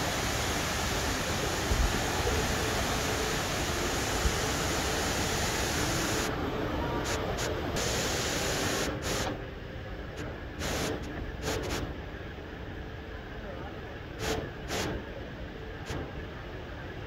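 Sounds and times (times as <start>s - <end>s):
indoor waterfall rushing: 0.0s - 6.3s.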